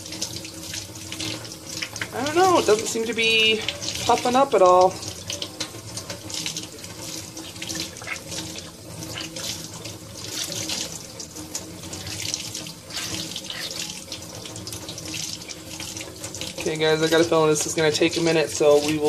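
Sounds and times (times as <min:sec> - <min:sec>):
faucet running: 0:00.0 - 0:19.0
water splashing into a steel sink: 0:00.0 - 0:19.0
wet sponge squeezed: 0:07.6 - 0:09.6, 0:12.8 - 0:14.0.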